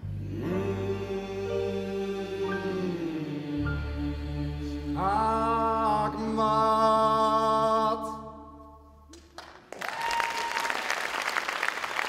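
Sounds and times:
voices singing held chord: 0.0 - 8.6
audience applause: 9.2 - 12.0.

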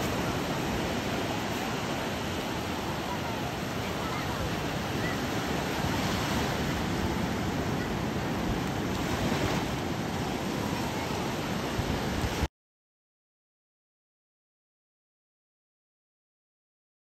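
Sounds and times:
small waves washing on beach: 0.0 - 12.5.

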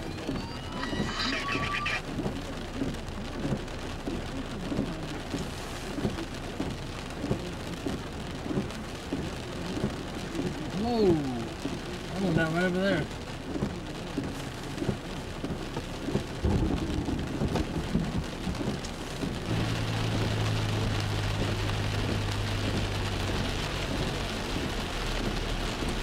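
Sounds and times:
steady rain: 0.0 - 26.0
loud thunder rumbling: 16.4 - 18.5.

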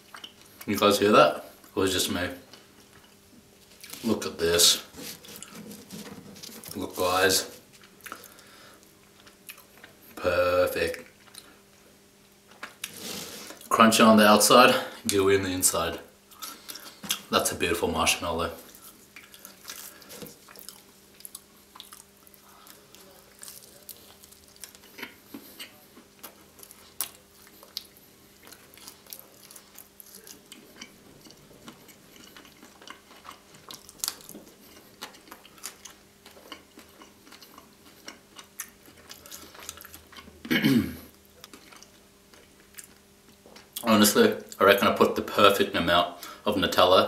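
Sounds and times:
wet chewing and mouth smacks: 0.0 - 0.7, 18.7 - 40.4
faint electrical hum: 0.0 - 47.0.

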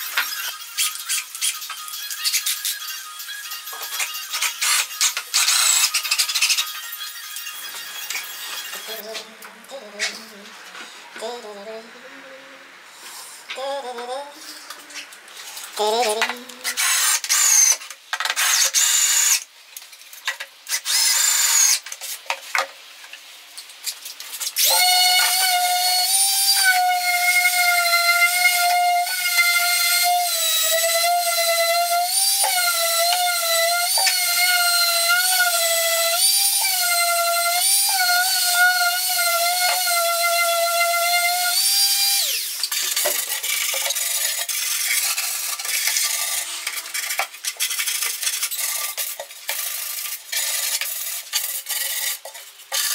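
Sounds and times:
electric power tool whining: 0.0 - 9.3, 24.6 - 43.1
cordless drill driving screws: 0.1 - 9.0, 16.7 - 19.4, 20.7 - 21.8.

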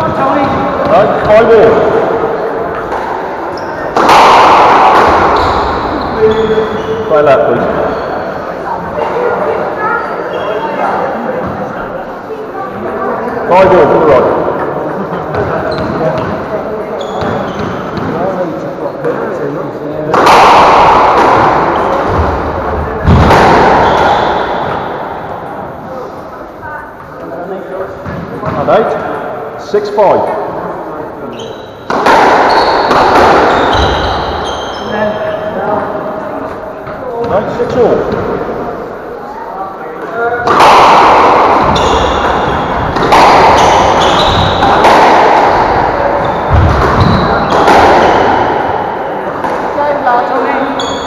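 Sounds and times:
squash ball hits echoing: 0.0 - 9.7, 15.3 - 19.3, 20.0 - 25.8, 31.8 - 38.8, 40.0 - 51.0
shoes squeaking on wooden floor: 3.5 - 4.0, 5.3 - 7.2, 7.8 - 8.4, 16.9 - 18.2, 31.3 - 35.5, 41.6 - 44.7, 46.0 - 48.2, 50.6 - 51.0.

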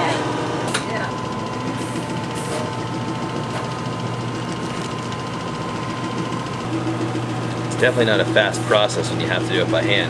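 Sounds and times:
machinery motor hum: 0.0 - 10.0.

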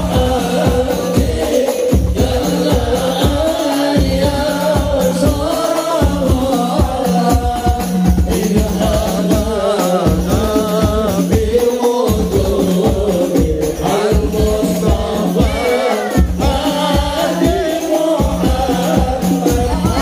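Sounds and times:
frame drums beating: 0.0 - 20.0
men singing in unison: 0.0 - 20.0.

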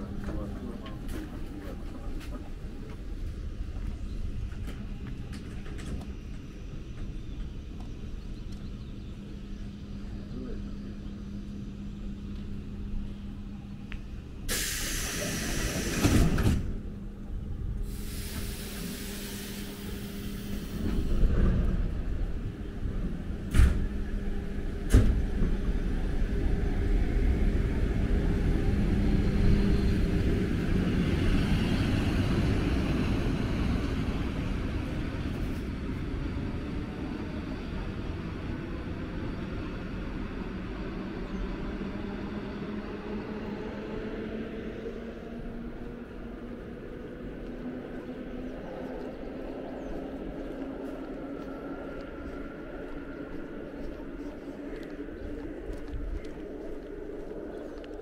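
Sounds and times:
train pulling away: 0.0 - 57.8
electric train hum: 0.0 - 58.0
pneumatic hisses: 14.5 - 16.6, 17.9 - 20.8.

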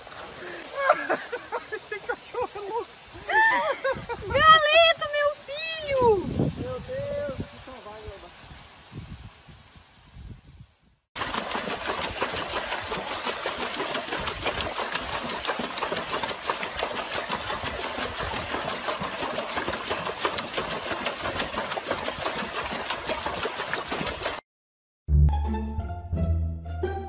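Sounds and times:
dog splashing water: 11.2 - 24.4.

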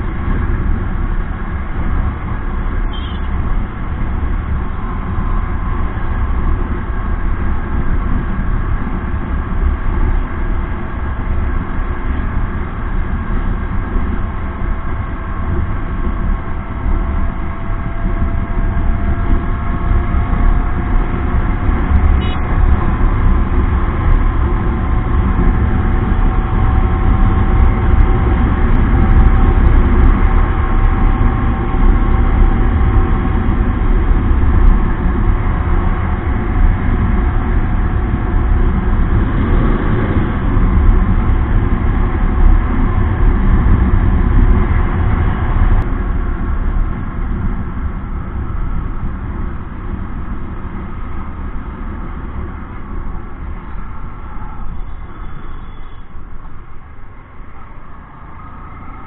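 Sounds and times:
wind rushing on microphone: 0.0 - 59.0
motorcycle engine: 0.9 - 45.8.

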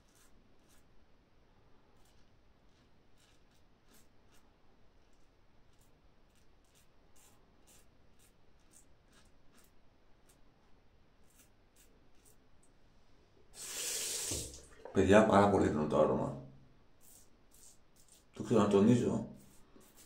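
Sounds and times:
razor scraping stubble: 0.0 - 0.9, 2.0 - 10.5, 11.2 - 12.5, 17.0 - 20.0.

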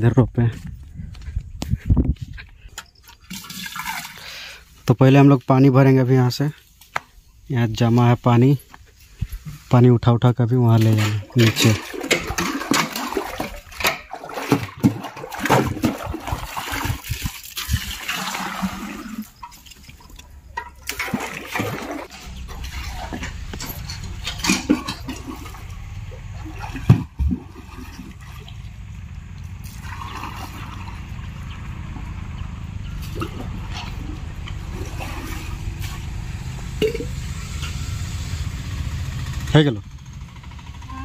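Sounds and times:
water splashing and sloshing: 1.1 - 6.9, 10.5 - 39.4
metal bucket knocking: 10.8 - 17.0, 20.5 - 25.6, 36.8 - 37.2.

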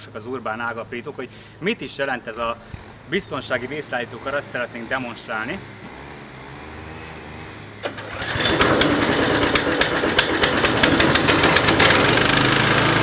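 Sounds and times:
wood chipper engine running: 7.8 - 13.0.

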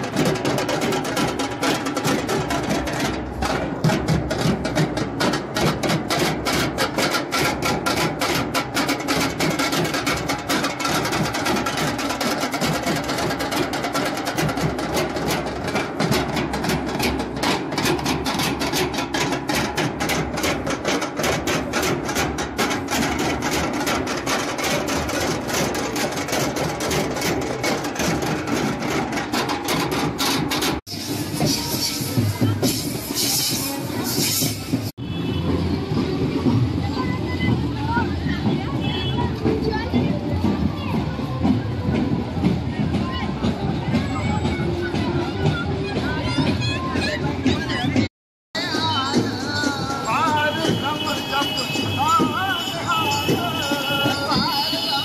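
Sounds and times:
marching drum band: 0.0 - 55.0.

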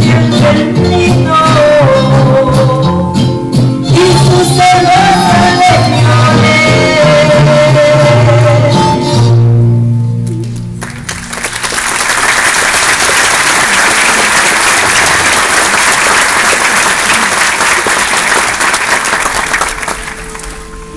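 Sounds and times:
music: 0.0 - 12.1, 19.1 - 20.9
audience applauding: 10.8 - 20.7.

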